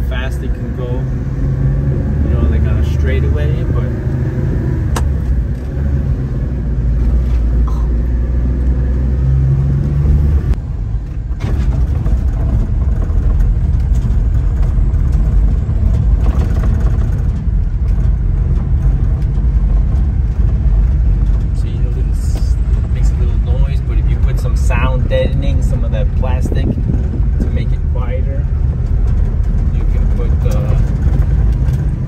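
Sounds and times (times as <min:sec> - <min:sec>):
small truck engine running: 0:00.0 - 0:32.0
tyres on gravel: 0:11.2 - 0:32.0.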